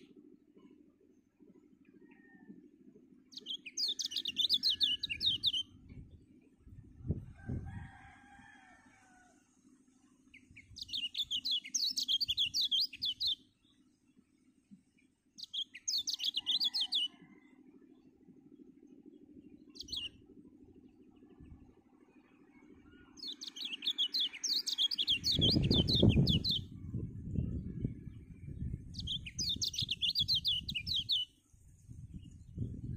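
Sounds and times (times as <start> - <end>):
songbird high chirping: 3.3 - 6.1, 10.4 - 13.8, 15.4 - 17.4, 22.8 - 31.4.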